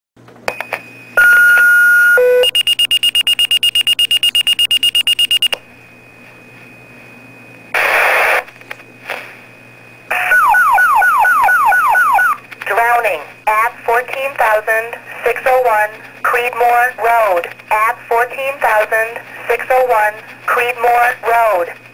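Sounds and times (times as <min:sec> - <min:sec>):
rapid alert beeping: 0:01.2 - 0:05.6
radio static burst: 0:07.8 - 0:08.5.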